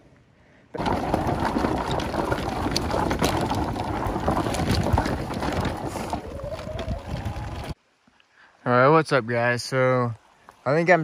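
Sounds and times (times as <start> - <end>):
tyres rumbling over dirt and stones: 0.8 - 7.8
wind buffeting microphone: 0.8 - 7.8.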